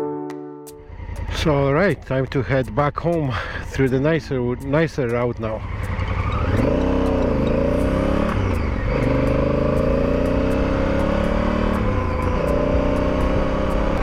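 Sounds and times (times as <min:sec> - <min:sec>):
motorcycle engine accelerating: 0:00.8 - 0:02.8, 0:03.8 - 0:14.0
gear upshifts: 0:03.8 - 0:14.0.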